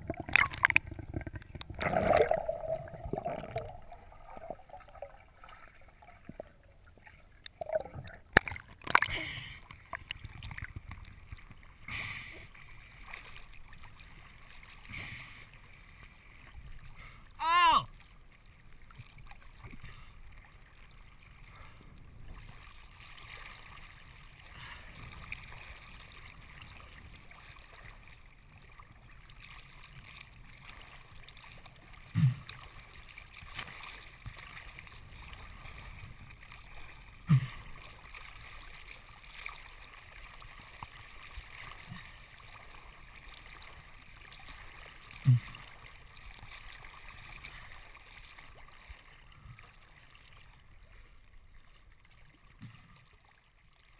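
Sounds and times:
waves thumping against camera: 0.0 - 4.6
seawater lapping and sloshing: 0.0 - 53.9
wind: 0.0 - 53.9.

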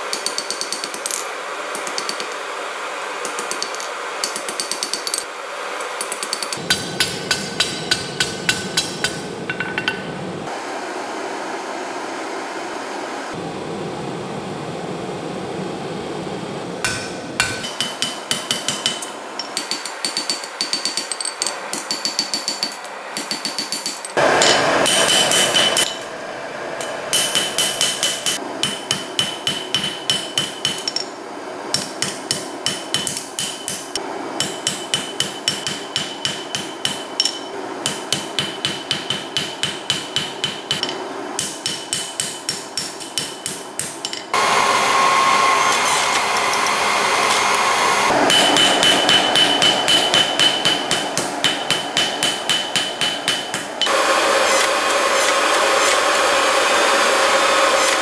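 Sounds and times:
hammer striking blade on anvil: 0.1 - 1.2, 6.0 - 10.1, 16.8 - 26.1, 26.8 - 31.1, 31.7 - 44.3, 48.2 - 56.1
power hammer pounding steel: 6.0 - 10.1, 16.8 - 26.1, 26.8 - 31.1, 31.7 - 44.5, 45.6 - 58.0
anvil ringing: 6.2 - 10.2, 16.9 - 26.1, 26.8 - 31.1, 31.8 - 44.4, 48.2 - 54.0.

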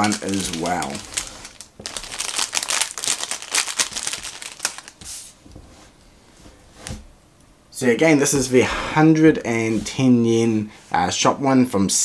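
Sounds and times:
plastic bag crinkling: 0.0 - 5.2.

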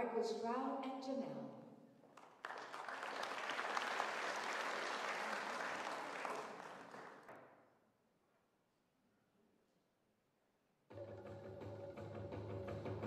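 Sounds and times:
audience applauding: 2.2 - 7.4.

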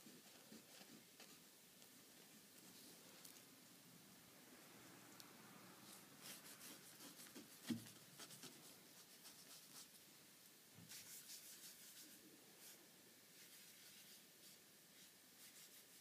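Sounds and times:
paintbrush scratching on canvas: 6.2 - 10.0, 10.9 - 12.8, 13.4 - 16.0.

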